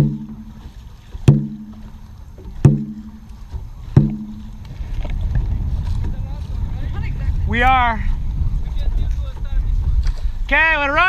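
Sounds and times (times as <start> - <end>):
drum hits ringing: 0.0 - 0.6, 1.2 - 1.9, 2.6 - 3.2, 3.9 - 4.6.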